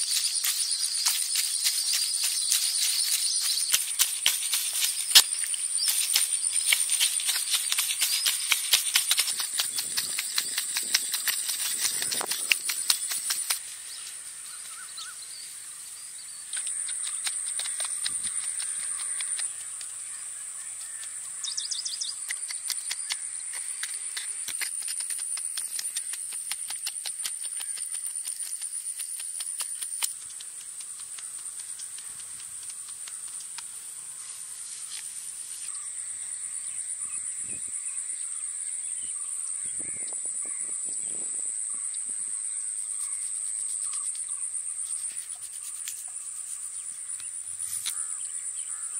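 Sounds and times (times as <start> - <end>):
bird calls: 0.0 - 35.0, 35.6 - 48.9
high-pitched insect drone: 0.0 - 48.9.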